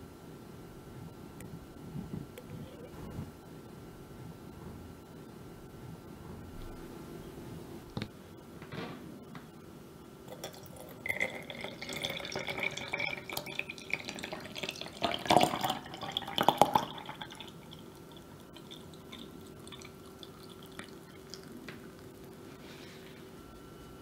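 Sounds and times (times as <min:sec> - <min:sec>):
liquid pouring into bottle: 0:10.3 - 0:22.2.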